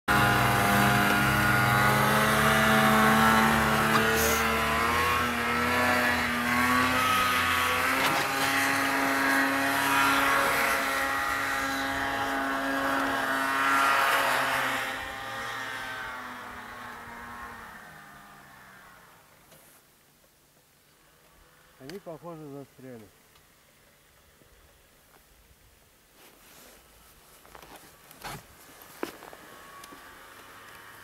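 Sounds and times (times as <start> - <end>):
snowmobile engine running: 0.1 - 19.4, 27.8 - 31.0.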